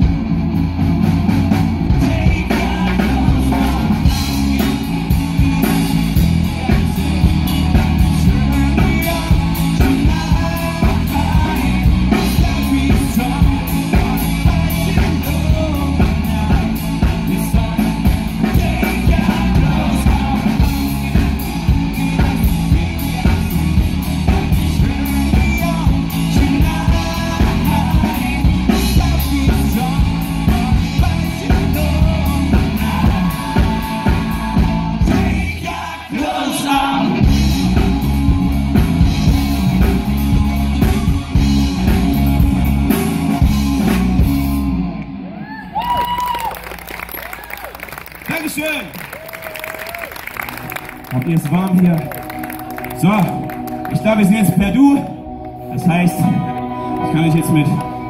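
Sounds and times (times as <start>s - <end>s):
live rock band: 0.0s - 58.0s
man singing: 1.9s - 37.9s.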